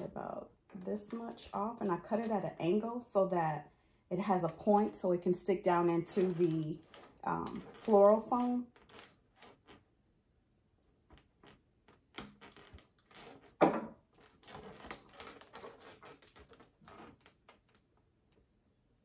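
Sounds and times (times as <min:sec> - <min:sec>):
rustling of craft materials: 0:04.3 - 0:09.8.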